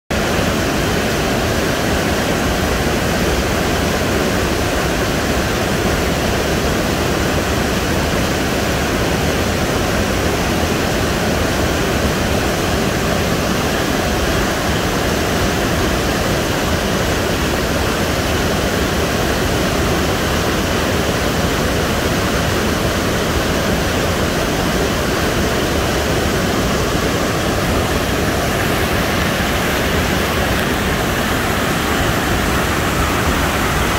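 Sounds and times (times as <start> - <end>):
rapids rushing over rocks: 0.1 - 33.9.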